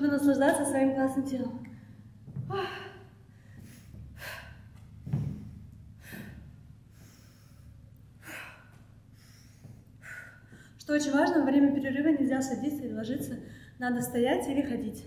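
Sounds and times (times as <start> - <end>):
woman gasping breaths: 1.7 - 4.9, 6.0 - 10.8.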